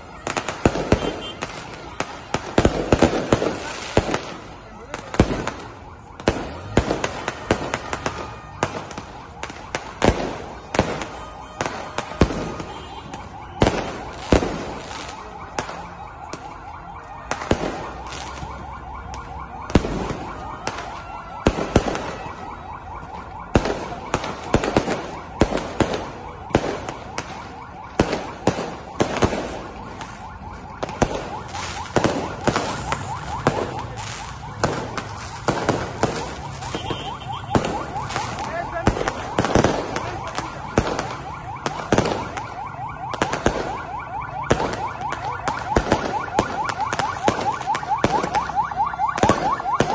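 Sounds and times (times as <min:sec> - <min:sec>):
fireworks banging and crackling: 0:00.0 - 0:49.9
wailing siren-like alarm: 0:00.0 - 0:49.9.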